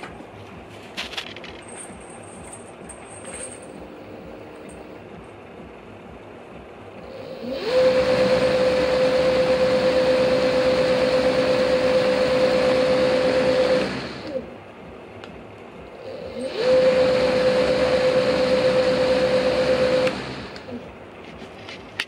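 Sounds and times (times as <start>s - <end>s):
electric motor whine: 7.0s - 14.5s, 16.0s - 20.9s.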